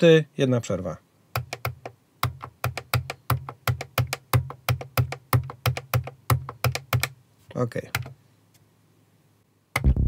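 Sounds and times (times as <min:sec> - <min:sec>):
synthesizer bassline: 0:09.8 - 0:10.0.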